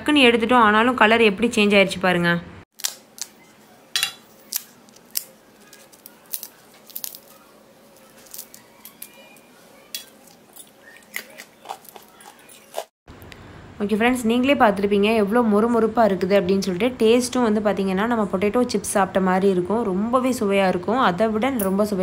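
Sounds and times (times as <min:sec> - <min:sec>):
crisp papad cracking: 0:04.4 - 0:09.4.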